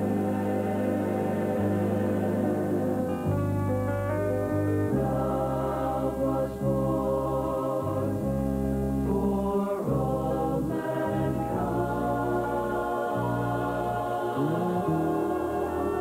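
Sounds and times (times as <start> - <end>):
mixed choir singing: 0.0 - 3.5, 4.8 - 8.4, 9.0 - 16.0
sustained instrumental backing: 0.0 - 16.0.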